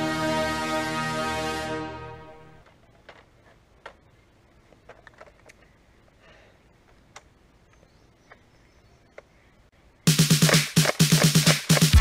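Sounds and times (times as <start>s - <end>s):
clicks and knocks of rifle handling: 4.7s - 5.7s.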